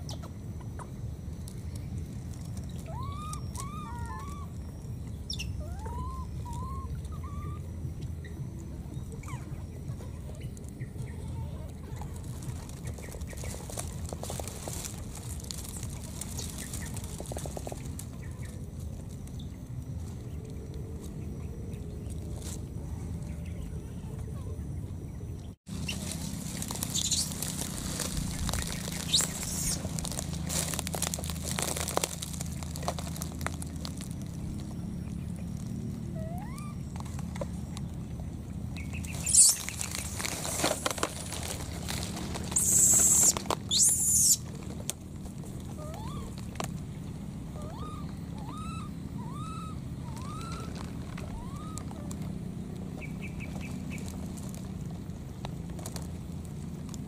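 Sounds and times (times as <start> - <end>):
steady low hum: 0.0 - 57.0
rising-then-falling animal calls: 2.8 - 4.6, 5.4 - 7.7, 36.0 - 37.0, 45.7 - 46.5, 47.5 - 52.2
short loud high calls: 2.8 - 4.6, 36.2 - 36.9, 39.0 - 40.6, 42.5 - 44.5, 47.6 - 52.1
clicks and rustles: 10.0 - 21.2, 25.7 - 36.0, 38.8 - 47.4, 50.2 - 57.0.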